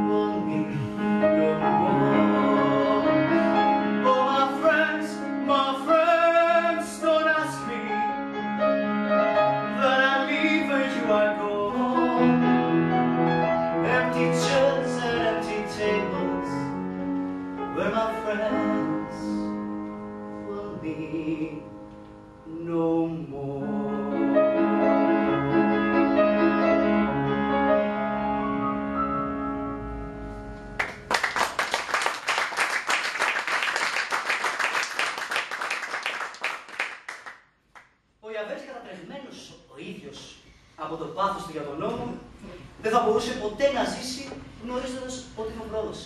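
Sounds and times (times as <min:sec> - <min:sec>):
upright piano playing slow piece: 0:00.0 - 0:31.1
audience applause: 0:30.8 - 0:37.4.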